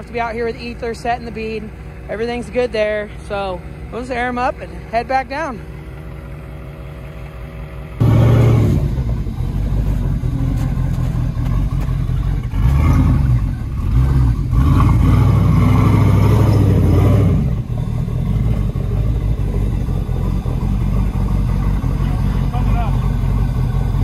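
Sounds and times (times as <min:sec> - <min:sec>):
engine revving loudly: 0:08.0 - 0:10.0, 0:11.6 - 0:24.0.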